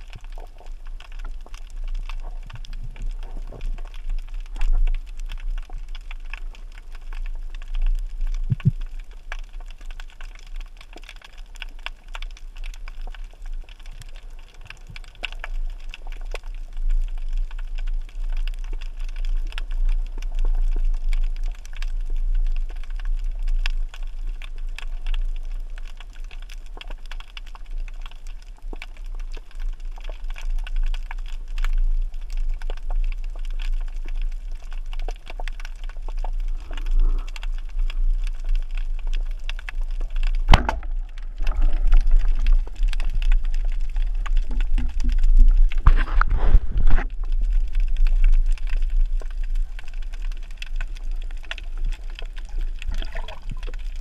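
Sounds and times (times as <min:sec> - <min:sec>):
crackle of tiny clicks underwater: 0:00.0 - 0:54.0
low rumble of water movement: 0:00.0 - 0:54.0
low knock: 0:40.5 - 0:40.9.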